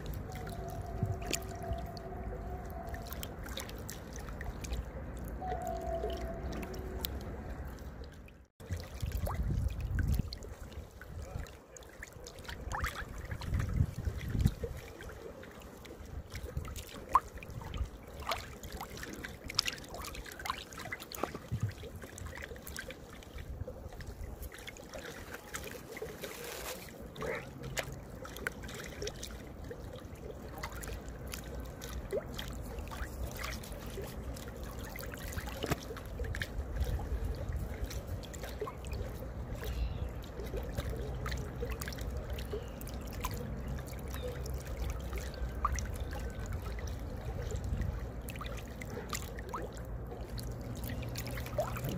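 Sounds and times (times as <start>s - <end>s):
little splashes and drips: 0.0s - 51.9s
small waves lapping: 0.0s - 51.9s.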